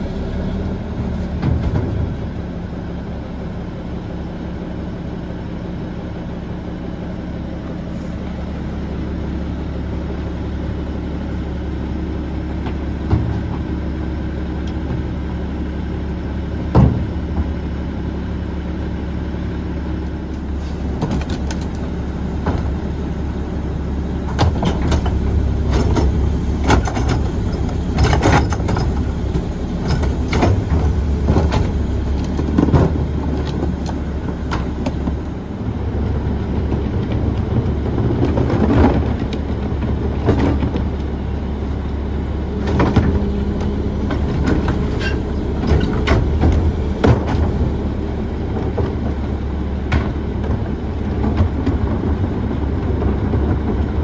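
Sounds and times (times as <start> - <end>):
diesel truck engine idling: 0.0 - 54.0
trash cart clattering bangs: 24.3 - 35.2, 42.7 - 52.2.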